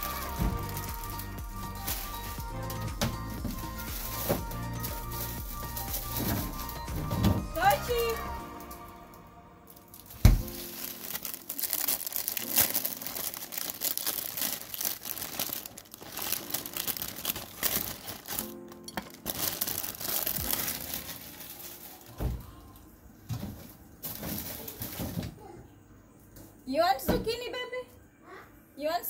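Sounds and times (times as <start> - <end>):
crinkling and crackling: 0.0 - 8.9, 9.7 - 25.6
quiet background music: 0.0 - 29.0.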